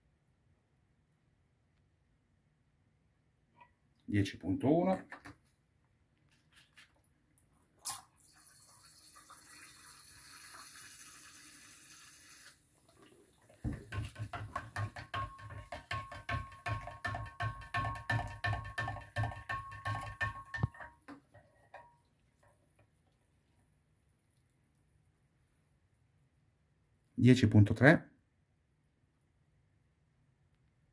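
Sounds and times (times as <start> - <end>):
liquid hissing from bottle: 7.9 - 12.6
spoon stirring in glass jar: 13.7 - 22.0.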